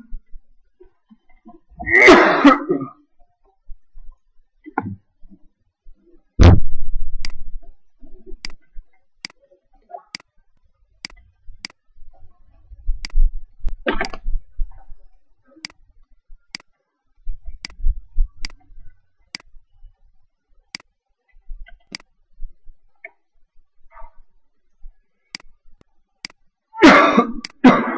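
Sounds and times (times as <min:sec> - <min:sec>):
small sharp clicks: 0:07.2 - 0:07.5, 0:08.4 - 0:09.4, 0:11.0 - 0:11.8, 0:16.5 - 0:16.7, 0:18.4 - 0:18.7, 0:19.3 - 0:19.6, 0:20.7 - 0:21.0, 0:21.6 - 0:22.1, 0:25.3 - 0:26.4.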